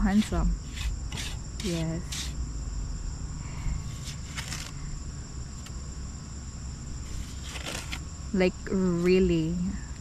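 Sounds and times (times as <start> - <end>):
insect chorus drone: 0.0 - 10.0
short scrapes: 0.2 - 2.4.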